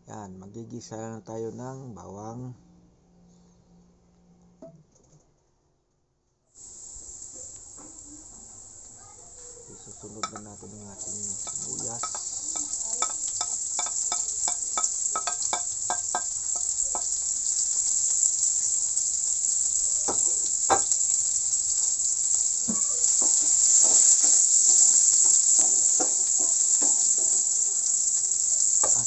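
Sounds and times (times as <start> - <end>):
onions sizzling in a frying pan: 6.6 - 29.0
spatula scraping a pan: 10.2 - 17.6, 22.7 - 28.1.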